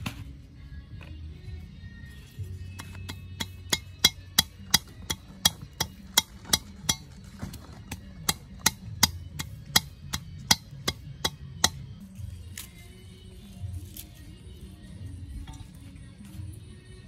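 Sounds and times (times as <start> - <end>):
pestle pounding in metal mortar: 3.0 - 7.1, 7.9 - 11.8.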